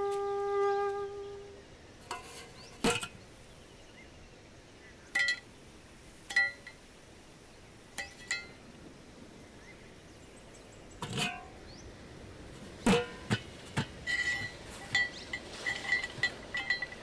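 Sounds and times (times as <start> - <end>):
metallic clinks and knocks: 5.1 - 5.5, 6.3 - 6.8, 8.0 - 8.6, 12.9 - 17.0.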